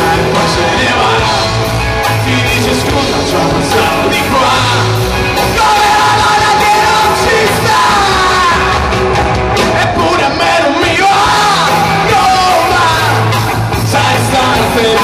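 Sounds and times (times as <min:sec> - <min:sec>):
rock band playing: 0:00.0 - 0:15.0.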